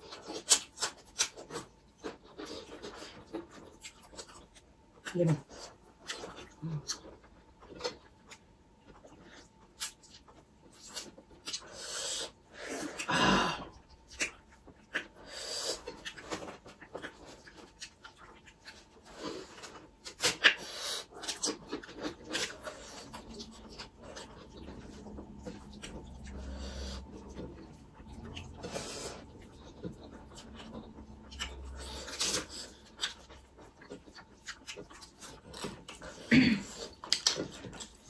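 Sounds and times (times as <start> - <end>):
people chewing food: 0.0 - 38.0.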